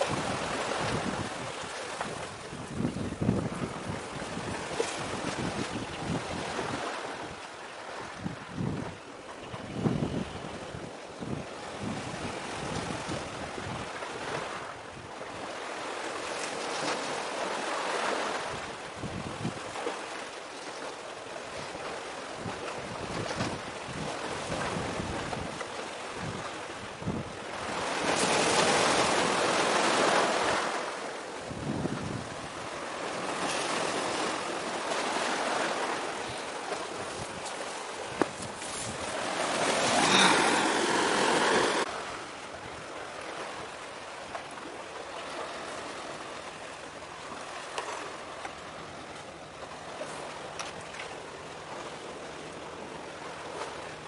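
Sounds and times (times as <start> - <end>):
wind buffeting microphone: 0.0 - 7.4, 8.0 - 15.5, 18.4 - 19.9, 21.5 - 53.9
sea waves washing: 0.0 - 8.6, 11.5 - 54.0.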